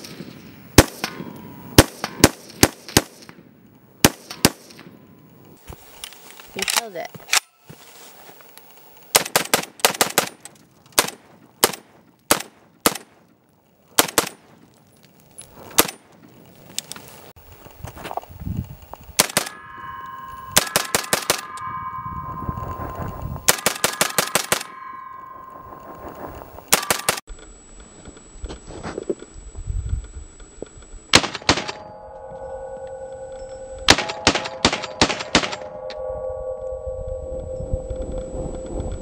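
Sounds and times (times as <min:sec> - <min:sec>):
steel tanks ringing metallically: 0:00.4 - 0:02.3, 0:18.9 - 0:27.2, 0:31.4 - 0:39.0
rifle shots: 0:00.8 - 0:03.3, 0:04.0 - 0:04.8, 0:09.1 - 0:10.4, 0:11.0 - 0:13.2, 0:14.0 - 0:14.5, 0:31.2 - 0:31.8.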